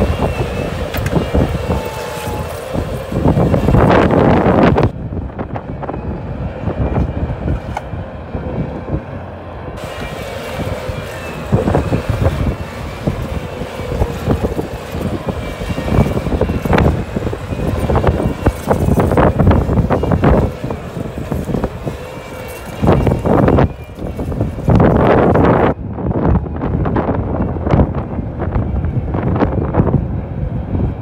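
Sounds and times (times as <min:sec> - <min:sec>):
clanks and knocks from tracks: 0:00.0 - 0:06.0, 0:09.8 - 0:25.8
loader diesel engine under load: 0:00.0 - 0:31.0.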